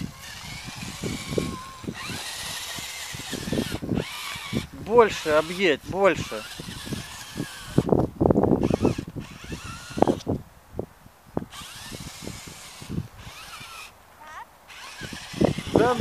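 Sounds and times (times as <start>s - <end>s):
toy car motor whirring: 0.0s - 10.4s, 11.4s - 16.0s.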